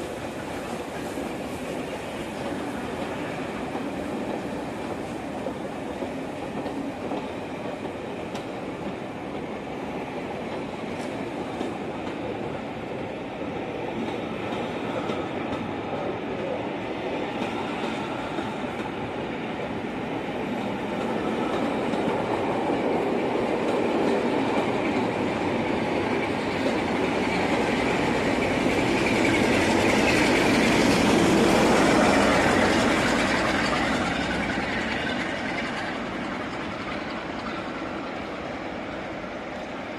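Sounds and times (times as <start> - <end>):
train wheels rolling on rails: 0.0 - 39.9.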